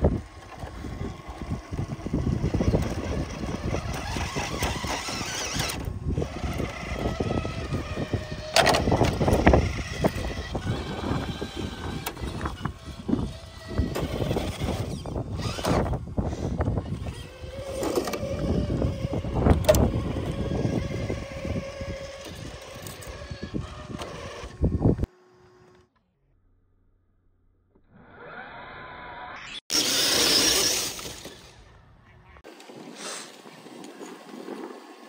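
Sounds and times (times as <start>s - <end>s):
tyres grinding on rock: 0.0s - 16.0s, 29.7s - 31.6s
electric motor whine: 0.0s - 26.0s, 27.8s - 31.7s.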